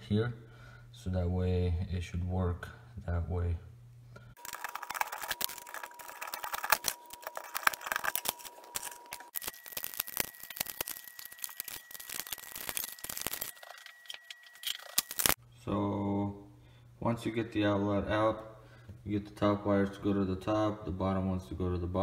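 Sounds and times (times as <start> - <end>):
screwdriver clicking and scraping: 4.4 - 15.4.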